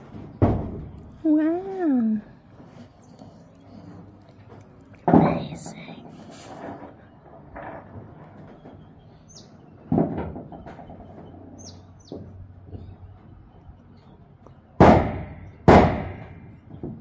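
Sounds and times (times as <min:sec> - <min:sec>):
construction bangs: 0:00.0 - 0:01.4, 0:06.5 - 0:13.9, 0:14.6 - 0:17.0
high bird chirps: 0:10.5 - 0:12.9.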